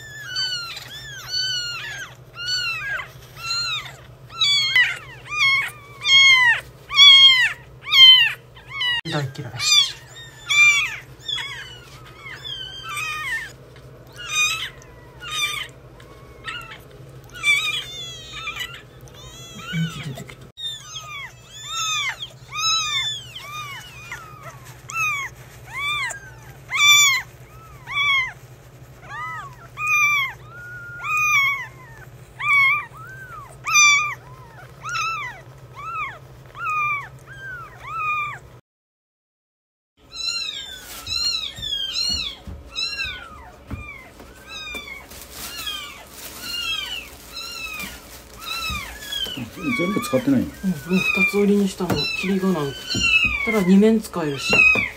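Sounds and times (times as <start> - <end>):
kitten mewing: 0.0 - 38.4, 40.1 - 54.9
tissue rubbing: 21.6 - 31.7, 40.3 - 43.4, 44.0 - 54.9.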